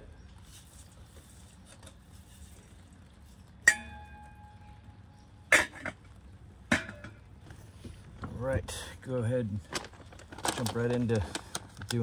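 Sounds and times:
metal clang ringing: 3.6 - 4.8, 6.7 - 7.3.

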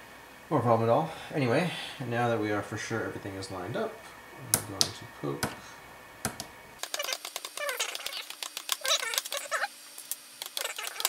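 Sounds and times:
short squeaky sounds: 6.8 - 9.7.

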